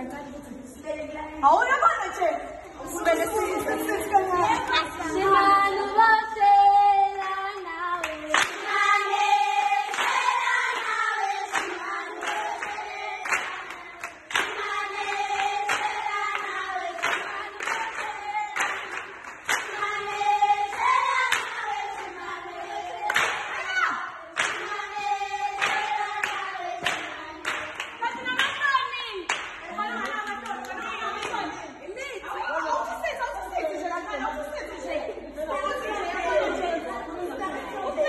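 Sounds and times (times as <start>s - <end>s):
girls singing together: 2.0s - 38.0s
hand claps keeping the beat: 8.0s - 31.5s.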